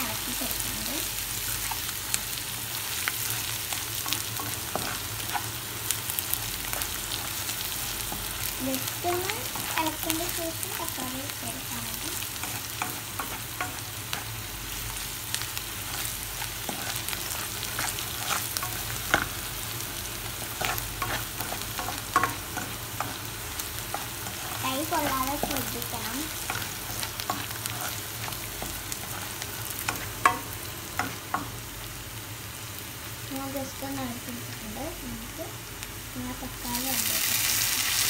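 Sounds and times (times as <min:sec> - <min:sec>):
food sizzling in hot oil: 0:00.0 - 0:38.0
spatula scraping pan: 0:15.8 - 0:19.4, 0:20.4 - 0:30.4.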